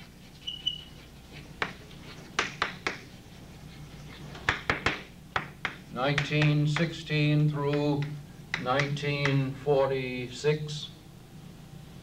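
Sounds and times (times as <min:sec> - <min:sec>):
chalk tapping and scratching on blackboard: 0:00.0 - 0:07.0.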